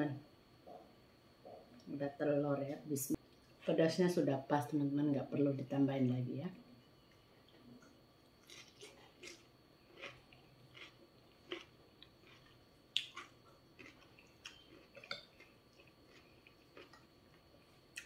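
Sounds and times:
person chewing: 7.5 - 18.0.

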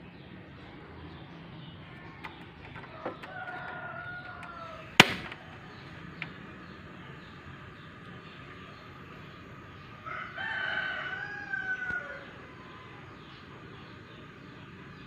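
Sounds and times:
gas stove igniter snapping: 2.1 - 9.4, 11.0 - 15.0
rooster crowing: 2.9 - 5.0, 9.9 - 13.2.

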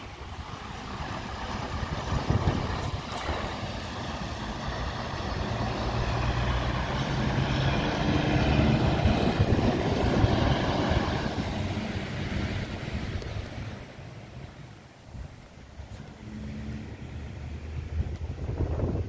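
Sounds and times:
wind buffeting microphone: 0.0 - 14.0, 17.5 - 19.0
vehicle driving past: 3.3 - 14.0, 15.8 - 19.0.

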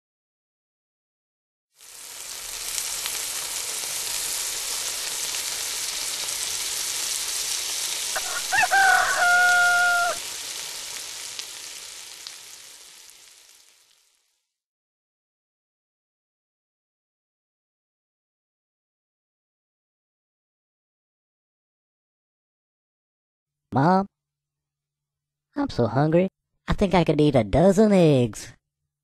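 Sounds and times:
eggs sizzling in a pan: 1.8 - 14.5
rooster crowing: 8.1 - 10.5.

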